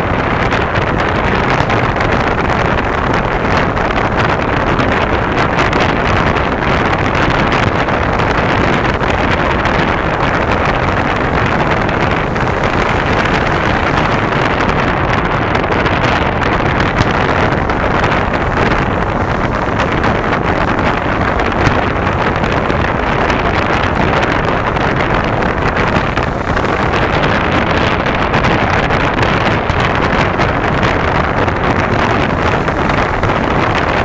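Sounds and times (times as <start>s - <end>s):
wind on microphone: 0.0s - 34.0s
distant firework thuds: 0.4s - 34.0s.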